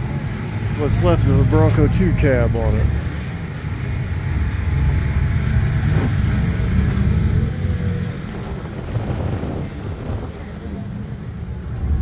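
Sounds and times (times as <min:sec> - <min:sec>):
wind buffeting microphone: 0:04.5 - 0:12.0.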